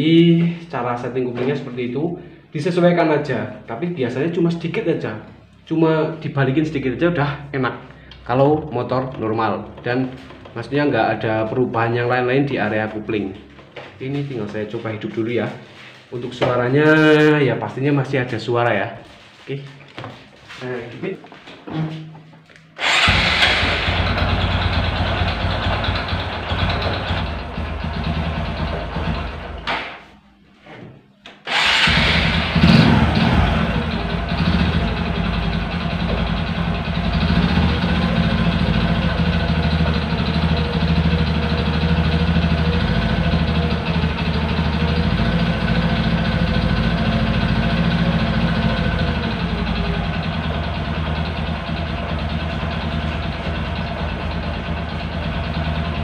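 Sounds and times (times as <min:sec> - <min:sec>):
rough mechanical engine noise: 0:22.8 - 0:29.5
motorcycle engine starting and idling: 0:22.8 - 0:29.7, 0:31.5 - 0:56.0.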